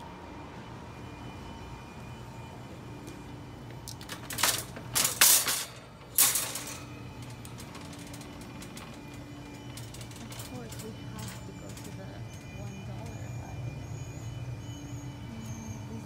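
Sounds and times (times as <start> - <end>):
shopping cart clattering: 3.8 - 14.4.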